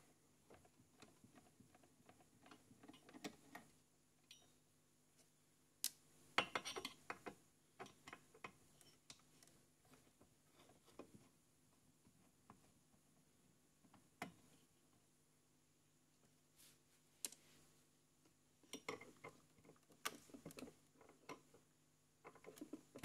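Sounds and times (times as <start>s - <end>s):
small clicks and knocks of tools: 0.5s - 4.6s, 5.8s - 10.0s, 18.7s - 21.6s, 22.2s - 23.0s.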